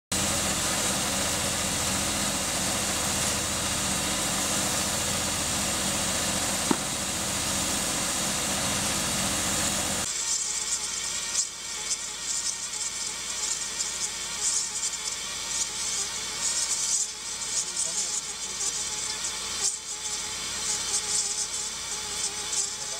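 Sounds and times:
engine running: 0.1s - 10.1s.

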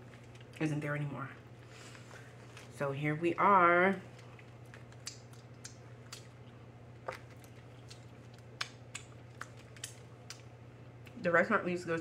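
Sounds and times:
eating clicks and wet smacks: 0.0s - 0.6s, 4.0s - 11.2s
low steady hum: 0.0s - 12.0s.

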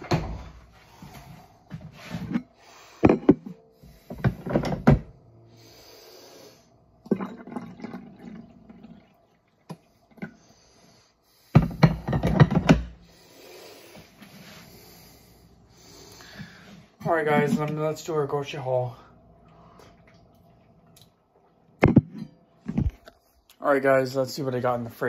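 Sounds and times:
coffee pouring: 7.0s - 10.4s
mug and pot clatter: 11.6s - 12.9s.

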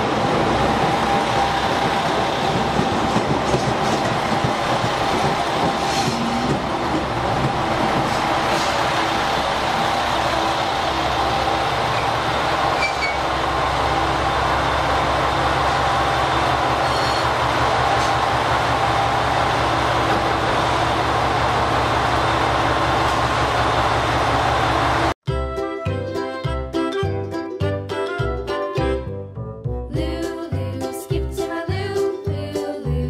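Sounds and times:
diesel train engines running: 0.0s - 25.2s.

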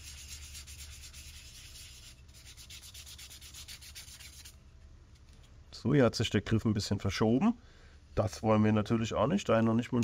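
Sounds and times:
sanding strokes on wood: 0.0s - 4.5s.

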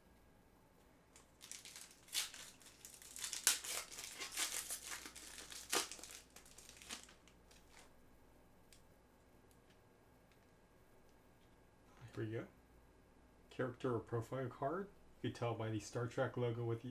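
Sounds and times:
foil wrapper tearing and crinkling: 1.2s - 7.9s.

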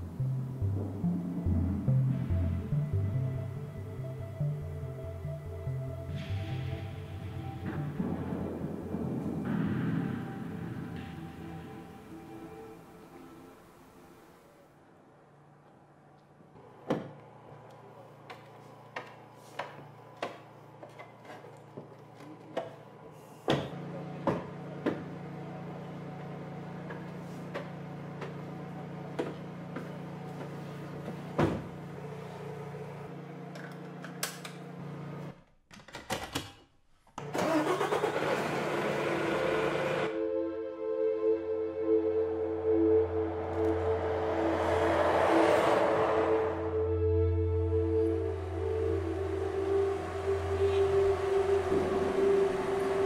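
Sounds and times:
truck engine humming: 0.0s - 15.9s, 37.4s - 53.0s
loud rushing noise: 42.1s - 53.0s.

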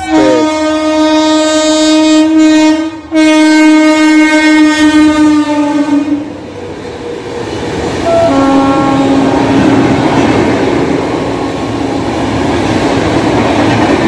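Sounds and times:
train horn blast: 0.0s - 6.3s, 8.0s - 9.7s
train coaches running past: 0.0s - 14.0s.

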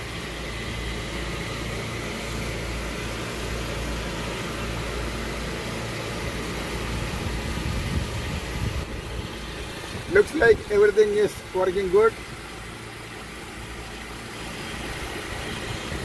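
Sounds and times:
generator running: 0.0s - 16.0s.

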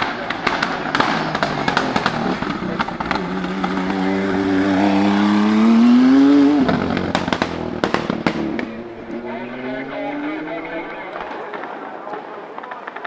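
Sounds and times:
anti-lag bangs and crackles: 0.0s - 4.0s, 6.6s - 9.1s
race car engine accelerating: 0.0s - 11.3s.

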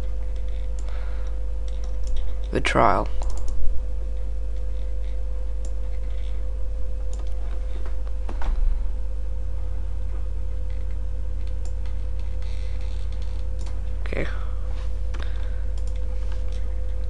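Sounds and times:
low electrical hum: 0.0s - 17.0s
light clicks: 15.1s - 17.0s.

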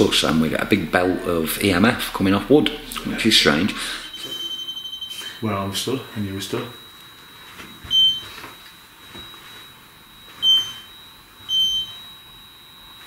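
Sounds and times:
high-pitched electronic beeps: 0.0s - 5.3s
faint steady high whine: 0.0s - 13.0s.

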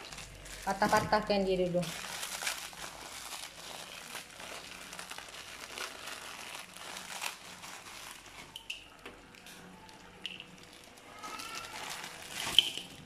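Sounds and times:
dry noodles crackling: 0.0s - 13.0s
plastic packet crinkling: 0.0s - 13.0s.

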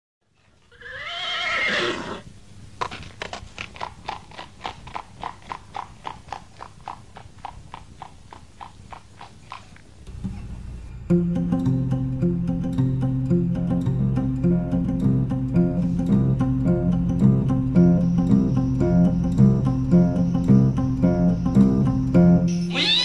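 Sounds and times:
horse whinnying: 0.7s - 2.3s, 22.6s - 23.0s
hooves clip-clopping: 2.8s - 10.6s.

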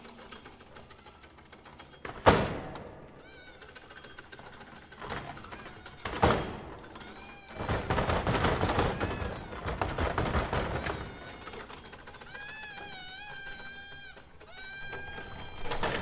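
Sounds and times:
rapid clattering knocks: 3.7s - 16.0s.

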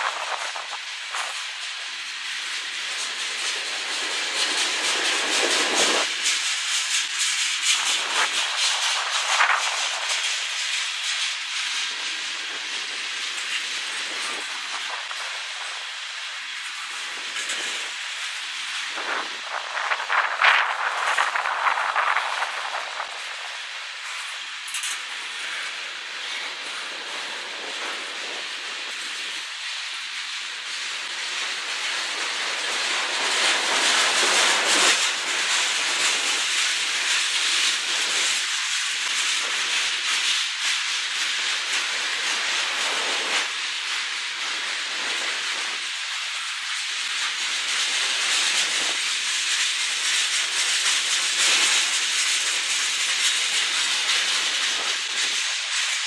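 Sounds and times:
train wheels rushing on rails: 0.0s - 56.0s.

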